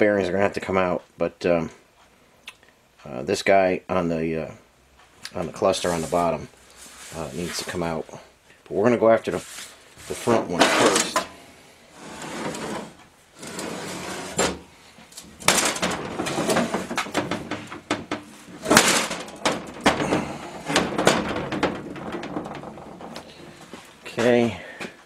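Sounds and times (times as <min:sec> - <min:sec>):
knocks and clunks on metal: 0:15.4 - 0:23.9
rag rubbing: 0:15.4 - 0:24.0.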